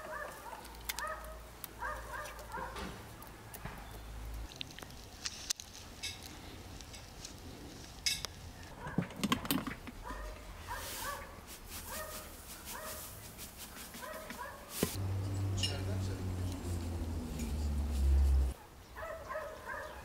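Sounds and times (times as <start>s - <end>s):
dog yelping: 0.0s - 2.8s, 18.4s - 20.0s.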